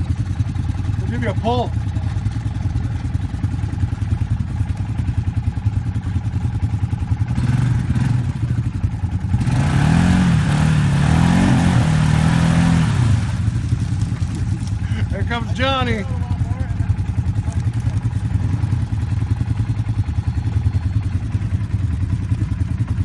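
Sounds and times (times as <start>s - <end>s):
quad engine revving: 0.0s - 23.0s
tyres spinning in mud: 13.0s - 15.6s.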